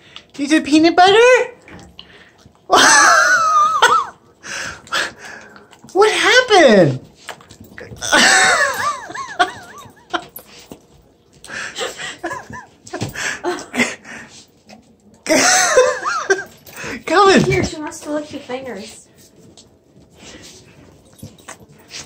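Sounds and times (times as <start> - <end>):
person laughing in high bursts: 2.7 - 4.2, 8.0 - 10.0.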